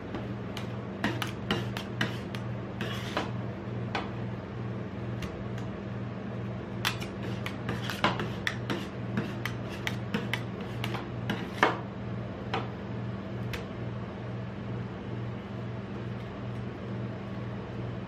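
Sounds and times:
steady low hum: 0:00.0 - 0:18.0
metal spatulas tapping and scraping: 0:00.6 - 0:03.3, 0:06.8 - 0:11.8.

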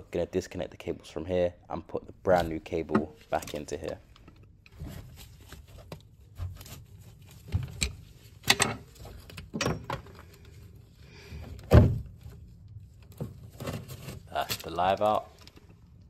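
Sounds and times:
tool knocking and scraping: 0:02.3 - 0:03.8.

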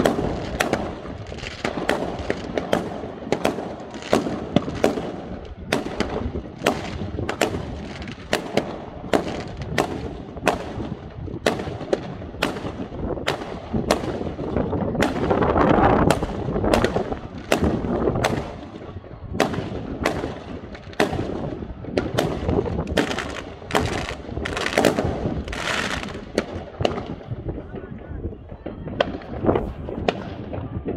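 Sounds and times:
fireworks bangs: 0:00.0 - 0:30.9.

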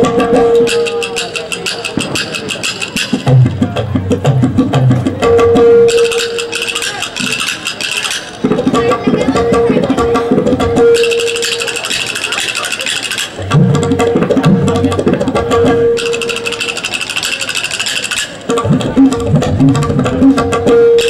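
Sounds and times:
wooden clappers clacking: 0:00.0 - 0:03.4, 0:05.9 - 0:09.3, 0:11.0 - 0:20.5
tabla drumming: 0:00.0 - 0:21.0.

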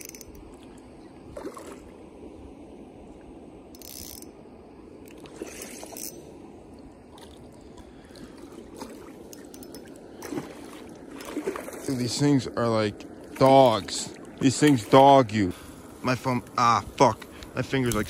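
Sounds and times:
fishing reel gears whirring: 0:00.0 - 0:00.5, 0:03.7 - 0:04.4, 0:05.0 - 0:06.3, 0:09.3 - 0:10.3.

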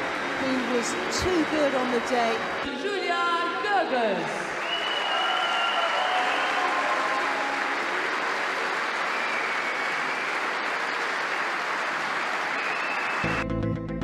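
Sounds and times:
audience applauding: 0:00.0 - 0:02.9, 0:04.2 - 0:13.4
music: 0:13.2 - 0:14.0.

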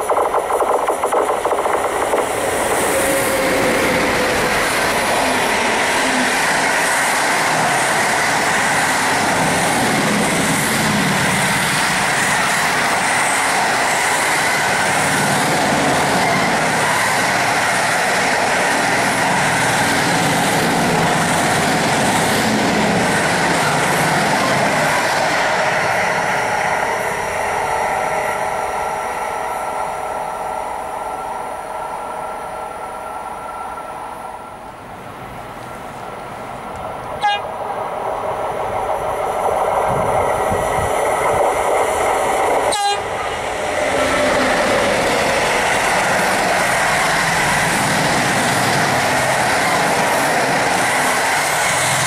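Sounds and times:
steady whining tones: 0:00.0 - 0:20.0
freight train rolling past: 0:00.0 - 0:52.0.

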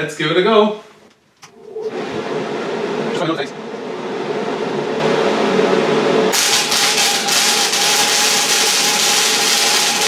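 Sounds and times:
welding arc crackling: 0:06.3 - 0:10.0.

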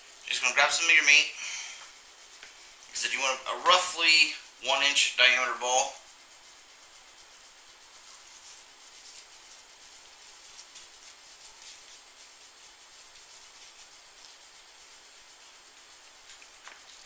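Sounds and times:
steady hiss: 0:00.0 - 0:17.0
meat mixture squishing: 0:06.0 - 0:17.0.

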